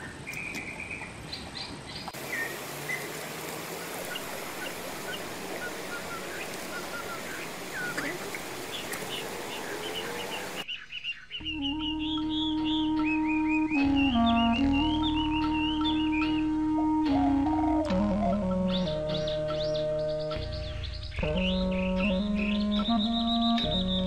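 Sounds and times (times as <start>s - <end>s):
birds chirping: 0.0s - 24.0s
steady outdoor hiss: 0.0s - 24.0s
music with held notes: 11.4s - 24.0s.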